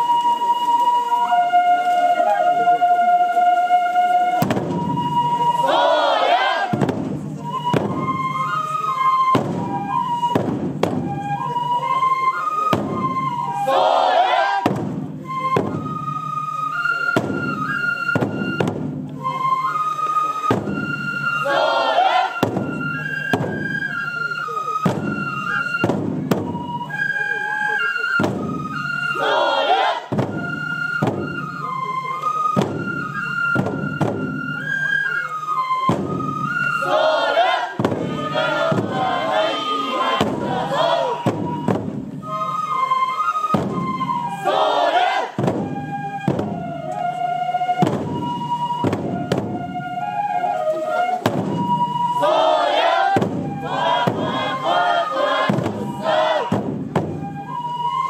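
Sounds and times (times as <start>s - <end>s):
bamboo flute melody: 0.0s - 58.0s
taiko drum strikes: 4.4s - 5.1s, 6.6s - 8.2s, 9.3s - 11.2s, 12.7s - 13.2s, 14.6s - 15.8s, 17.2s - 19.1s, 20.5s - 21.0s, 22.4s - 23.7s, 24.8s - 26.7s, 28.2s - 28.6s, 30.1s - 31.5s, 32.6s - 34.4s, 35.9s - 36.3s, 37.8s - 42.2s, 43.5s - 44.1s, 45.4s - 46.6s, 47.8s - 49.8s, 51.2s - 51.9s, 53.1s - 57.2s
group shouts: 5.7s - 6.7s, 13.7s - 14.6s, 21.4s - 22.3s, 29.2s - 30.1s, 36.9s - 41.2s, 44.5s - 45.3s.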